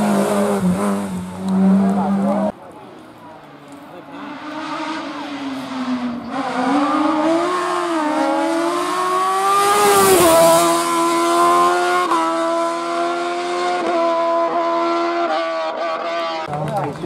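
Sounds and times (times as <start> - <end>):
race car accelerating past: 4.1 - 16.4.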